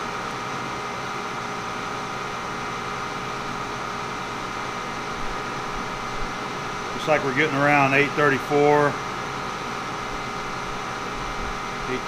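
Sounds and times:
mechanical hum with whining tones: 0.0 - 12.0.

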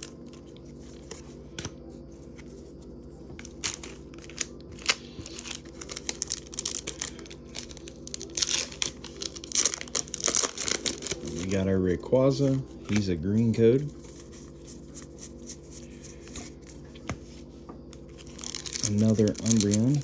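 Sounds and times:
low steady hum: 0.0 - 20.0
foil wrapper crinkling: 3.4 - 15.7, 17.9 - 20.0.

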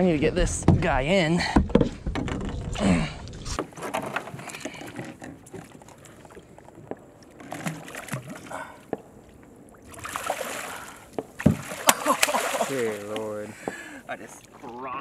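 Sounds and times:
water sloshing against boat hull: 0.0 - 15.0
fish splashing at surface: 9.9 - 13.3.

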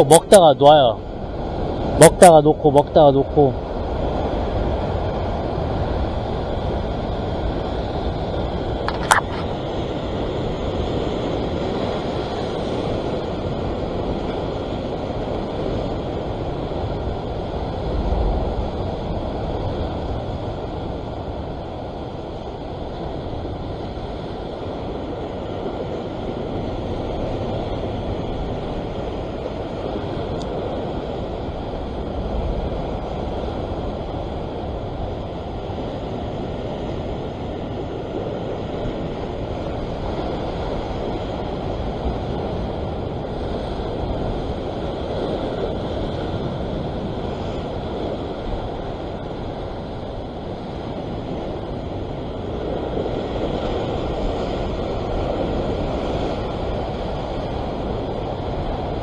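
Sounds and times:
sea surf washing over rocks: 0.0 - 59.0
wind on microphone: 2.8 - 59.0.

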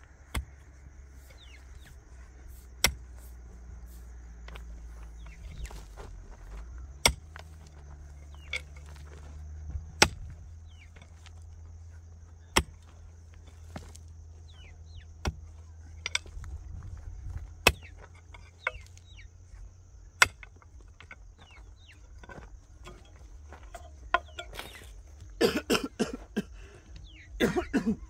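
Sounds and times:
birds chirping: 0.0 - 28.0
digging tool striking hard ground: 0.2 - 3.4, 6.9 - 8.9, 9.8 - 11.4, 12.5 - 14.0, 15.2 - 19.1, 20.2 - 25.8.

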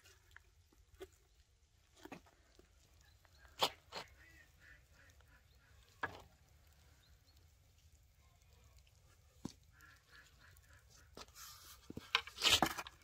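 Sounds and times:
faint bird calls: 2.7 - 7.6, 8.2 - 11.9.

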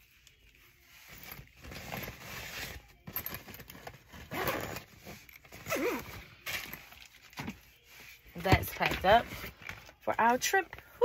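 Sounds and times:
zipper being pulled closed: 1.0 - 6.8
packing rustling: 1.0 - 10.0.

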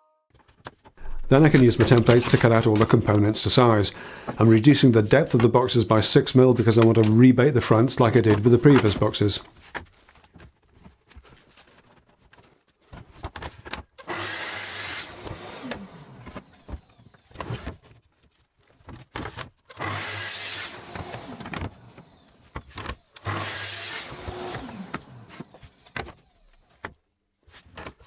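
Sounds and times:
boards knocking: 1.1 - 3.2
circular saw cutting wood: 14.0 - 17.4, 19.7 - 26.6.

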